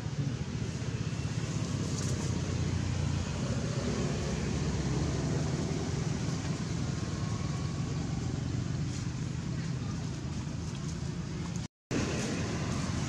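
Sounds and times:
low engine-like rumble: 0:00.0 - 0:13.0.

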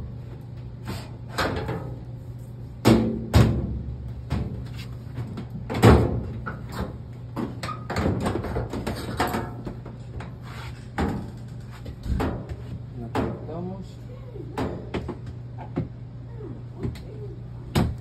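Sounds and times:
steady low hum: 0:00.0 - 0:18.0
knocks and rattles on dryer: 0:02.8 - 0:10.0, 0:11.0 - 0:13.7.

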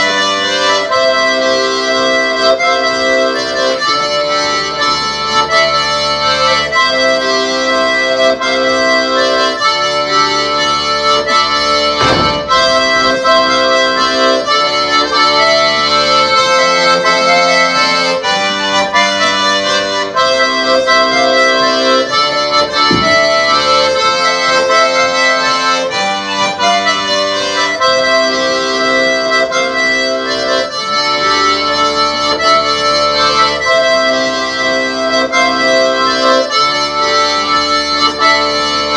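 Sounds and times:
accordion playing a dance tune: 0:00.0 - 0:38.9
brief thumps: 0:11.4 - 0:14.0, 0:21.5 - 0:24.8.

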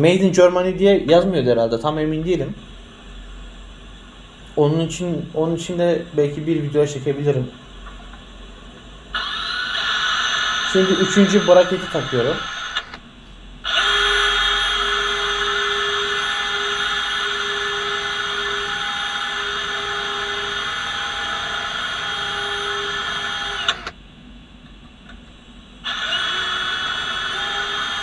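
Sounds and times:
cordless drill whining: 0:09.2 - 0:13.0, 0:13.6 - 0:24.0, 0:25.8 - 0:28.0.

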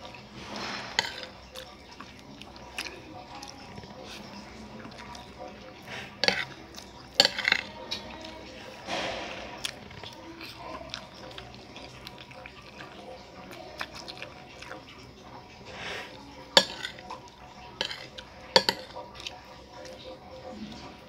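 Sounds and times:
chewing: 0:00.0 - 0:21.0
metal spoon scraping a plate: 0:00.3 - 0:01.6, 0:05.8 - 0:07.8, 0:16.0 - 0:19.0.

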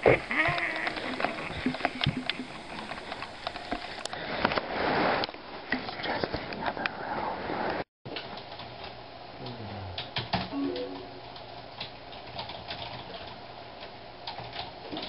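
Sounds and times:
short pitched sound: 0:10.6 - 0:11.3
typing on computer keyboard: 0:11.3 - 0:13.4, 0:14.3 - 0:15.0.

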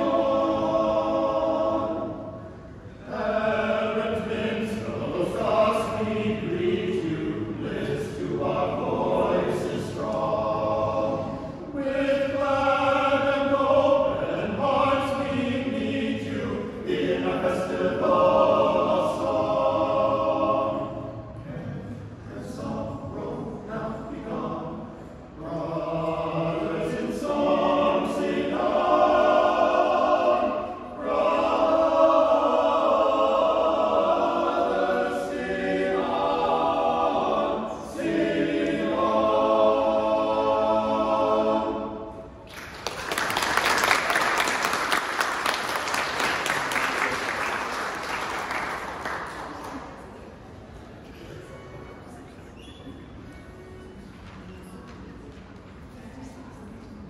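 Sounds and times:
men's choir singing: 0:00.0 - 0:42.4.

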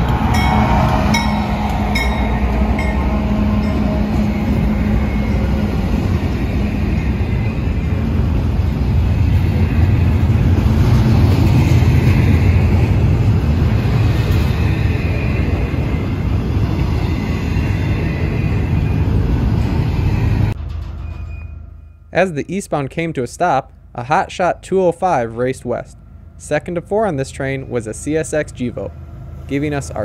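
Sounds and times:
crossing bell dinging: 0:00.0 - 0:07.5
freight train rumbling past: 0:00.0 - 0:30.0.

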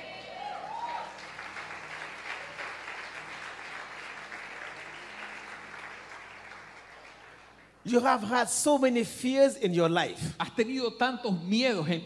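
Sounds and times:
congregation applauding: 0:00.0 - 0:08.1.

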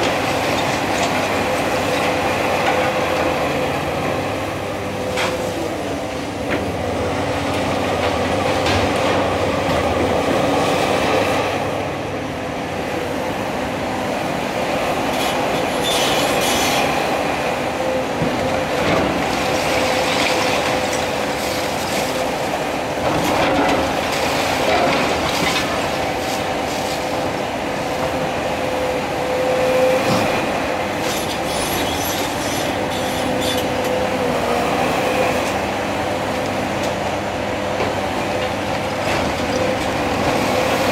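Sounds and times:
excavator engine and hydraulics whining: 0:00.0 - 0:40.9
steel tracks squealing and clanking: 0:15.0 - 0:27.2, 0:28.8 - 0:35.7.

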